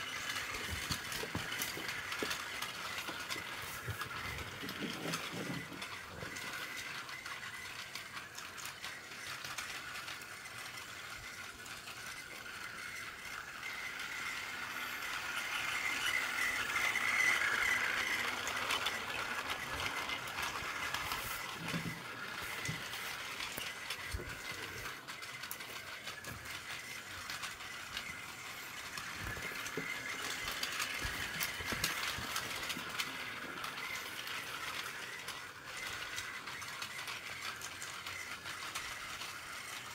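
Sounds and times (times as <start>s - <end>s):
toy train motors whirring: 0.0s - 39.9s
wheels clicking on plastic track: 0.0s - 39.9s.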